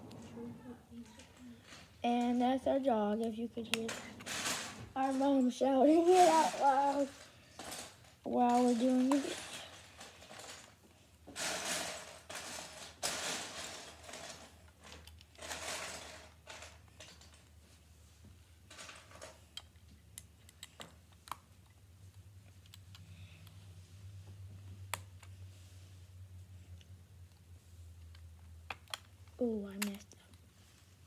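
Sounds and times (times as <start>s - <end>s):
low steady hum: 0.0s - 10.4s
plastic pieces rattling: 3.6s - 10.8s, 11.4s - 17.5s
plastic pieces clicking together: 6.0s - 10.7s, 28.1s - 30.2s.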